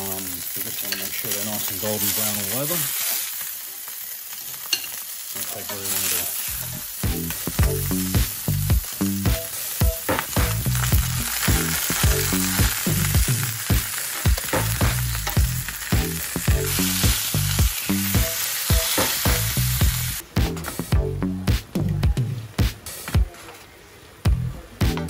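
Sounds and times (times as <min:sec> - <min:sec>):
meat sizzling on a hotplate: 0:00.0 - 0:20.2
background music with beat: 0:06.5 - 0:23.4, 0:24.2 - 0:25.0.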